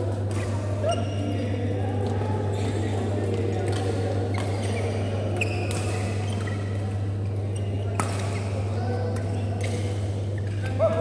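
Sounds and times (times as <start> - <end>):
court shoes squeaking: 0.0 - 11.0
rackets hitting shuttlecock: 5.4 - 6.9, 7.8 - 10.8.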